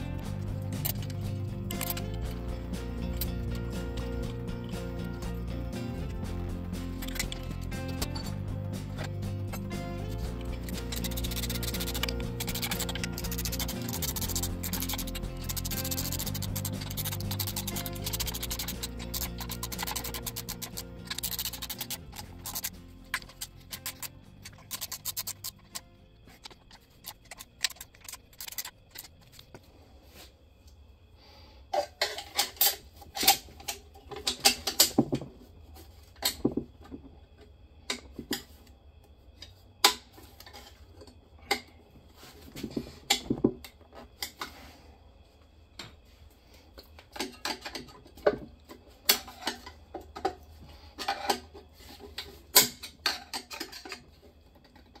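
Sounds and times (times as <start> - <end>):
metal parts and tools clinking: 0.6 - 4.4, 6.9 - 29.6.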